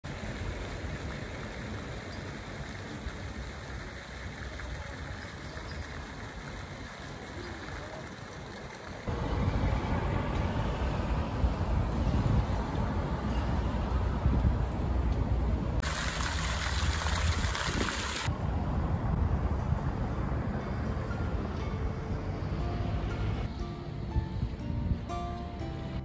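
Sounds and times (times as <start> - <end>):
fountain jets rushing: 0.0 - 11.8, 15.8 - 18.3
traffic: 0.0 - 26.0.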